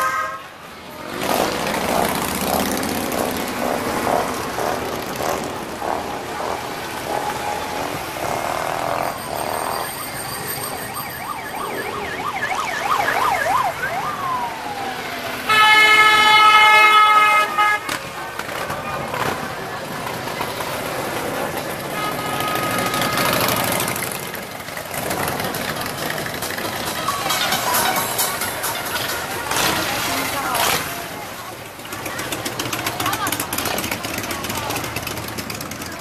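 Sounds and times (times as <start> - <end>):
loud multi-tone horn blast: 0.0 - 1.4, 15.4 - 18.1, 21.9 - 23.8
motorcycles passing: 0.0 - 36.0
siren yelping: 8.9 - 16.5.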